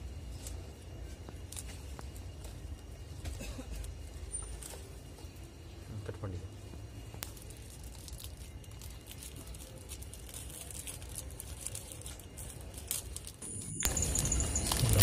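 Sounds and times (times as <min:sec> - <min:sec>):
plastic wrapping crinkling: 0:07.2 - 0:15.0.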